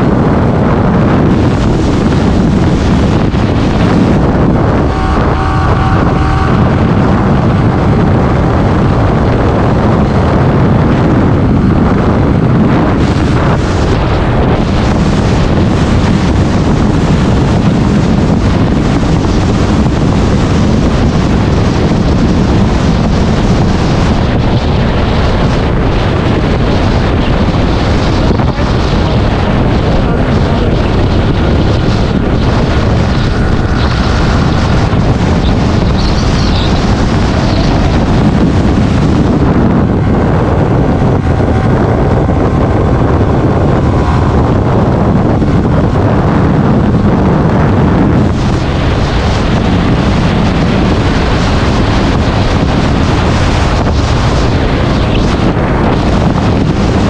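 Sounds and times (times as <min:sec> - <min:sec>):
motorcycle engine and road noise: 0:00.0 - 0:57.0
wind buffeting microphone: 0:00.0 - 0:57.0.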